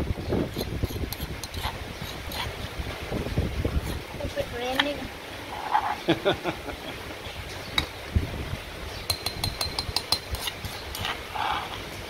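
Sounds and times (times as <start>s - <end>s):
metal spoon scraping mortar: 0.4s - 2.7s, 3.7s - 4.1s, 9.1s - 11.9s
spoon clinking against dish: 9.1s - 11.1s.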